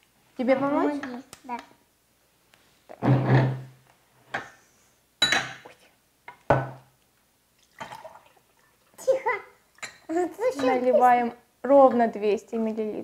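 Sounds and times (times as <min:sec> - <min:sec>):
glassware knocking and clinking: 0:05.2 - 0:05.6.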